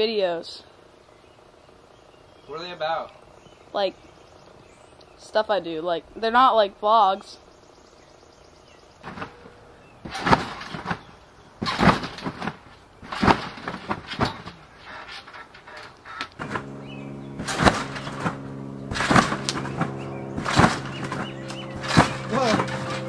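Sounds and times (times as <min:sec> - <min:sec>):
steady low hum: 0:00.0 - 0:23.0
trampoline mat and springs thumping: 0:09.0 - 0:23.0.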